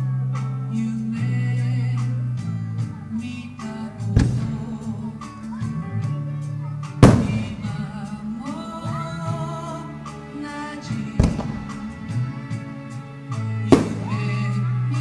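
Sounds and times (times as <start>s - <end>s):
music with singing: 0.0s - 15.0s
firework bursts: 4.2s - 4.9s, 7.0s - 9.0s, 11.2s - 12.9s, 13.7s - 14.6s.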